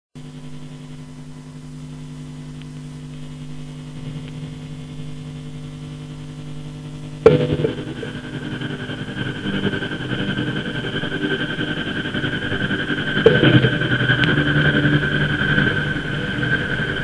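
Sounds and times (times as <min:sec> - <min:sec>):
low layered drone: 0:06.2 - 0:17.0.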